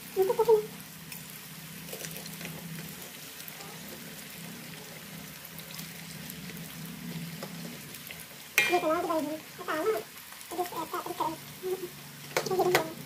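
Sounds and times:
crackers sizzling in hot oil: 0.0s - 13.0s
metal spatula stirring in wok: 8.6s - 9.2s
high-pitched voice: 8.7s - 13.0s.

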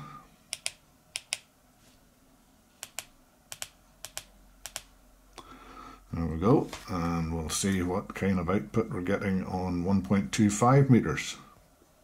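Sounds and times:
keypad buttons clicking: 0.5s - 1.5s, 2.8s - 4.9s.

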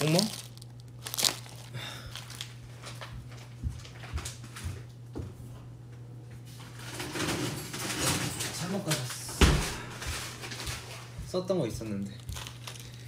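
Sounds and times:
steady low hum: 0.0s - 13.0s
kitchen items knocking and clattering: 6.8s - 11.4s.

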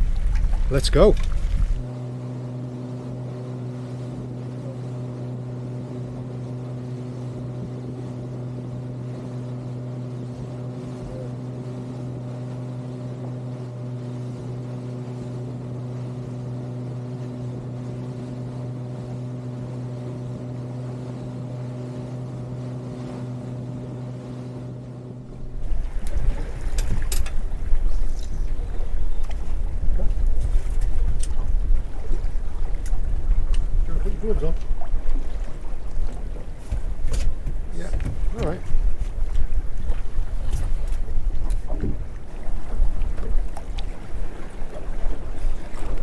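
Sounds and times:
boat engine humming: 0.0s - 46.0s.

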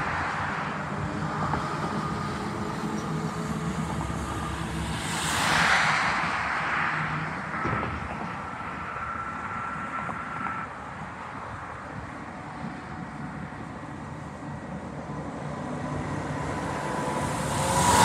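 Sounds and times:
highway traffic passing: 0.0s - 18.0s
vehicle rushing past: 15.1s - 18.0s.

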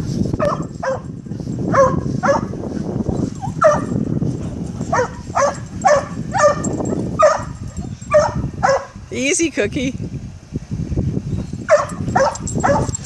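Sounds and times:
dogs yipping and whining: 3.1s - 4.0s, 4.9s - 8.9s, 11.7s - 13.0s.

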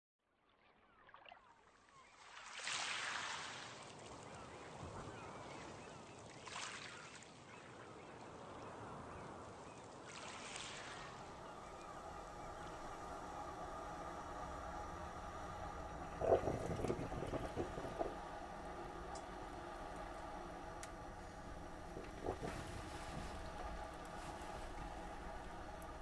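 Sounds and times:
waterbirds calling faintly: 0.6s - 26.0s
steady tones: 11.2s - 26.0s
water washing against rock: 12.6s - 26.0s.

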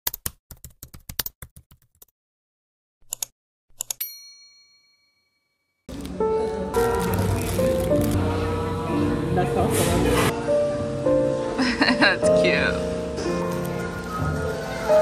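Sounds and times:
computer keyboard typing: 0.1s - 2.1s
background music: 5.9s - 15.0s.

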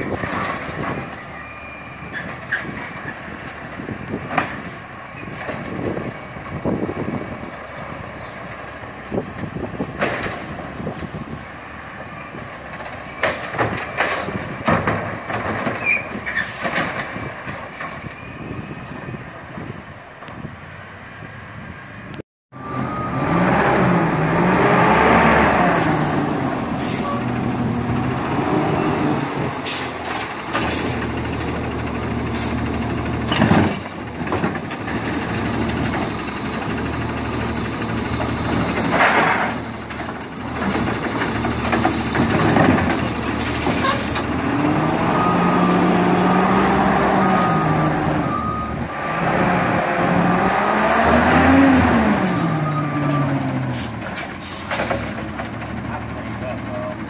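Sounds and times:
distant truck running: 0.0s - 57.0s
loud knocks of carts: 2.2s - 6.0s, 9.4s - 10.9s, 12.4s - 18.2s, 32.4s - 44.7s, 53.9s - 56.3s
garbage truck engine revving: 22.6s - 56.4s.

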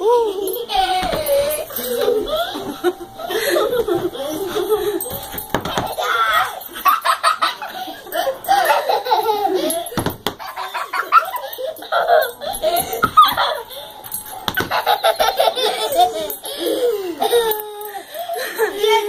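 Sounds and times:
children giggling: 0.0s - 19.0s
people laughing: 0.0s - 19.0s
thumps: 3.8s - 6.2s, 10.0s - 10.5s, 12.8s - 14.9s.

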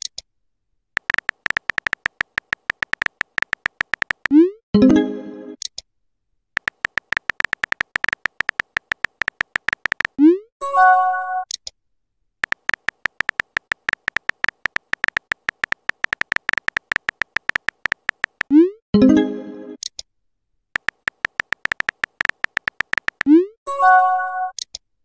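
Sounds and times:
keyboard tap clicks: 1.0s - 4.4s, 6.6s - 10.2s, 12.4s - 18.5s, 20.8s - 23.4s.

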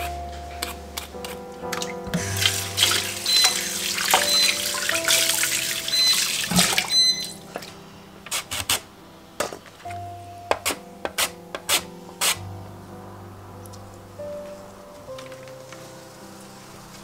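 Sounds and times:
soft background music: 0.0s - 17.0s
tap water running into sink: 2.2s - 7.7s.

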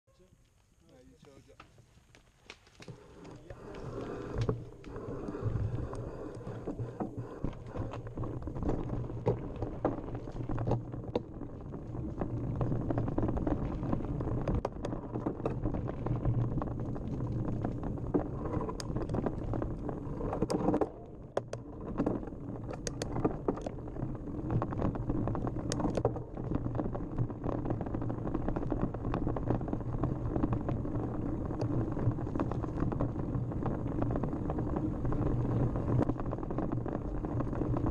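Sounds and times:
bike clicks and rattles: 0.4s - 4.9s, 12.8s - 23.9s
bike tyres rumbling on dirt: 0.4s - 37.9s.

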